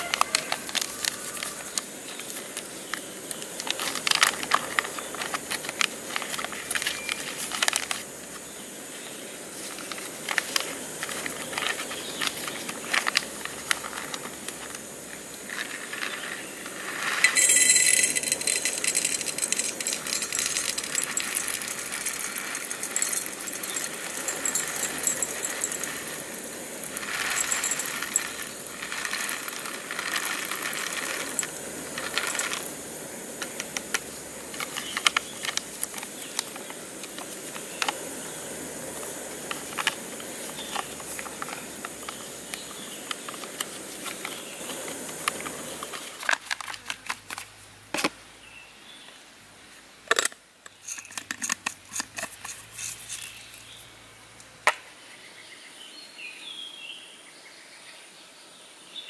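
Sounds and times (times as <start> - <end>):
coffee beans pouring into metal canister: 0.0 - 1.8, 15.4 - 38.1
paper bag crinkling: 15.5 - 32.8.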